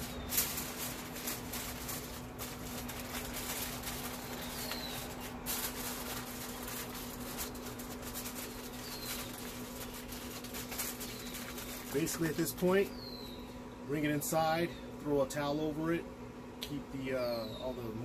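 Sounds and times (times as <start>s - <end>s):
aluminium foil crinkling: 0.0s - 12.9s
bird chirp: 4.1s - 5.4s, 8.3s - 10.4s, 11.0s - 13.8s, 17.2s - 18.0s.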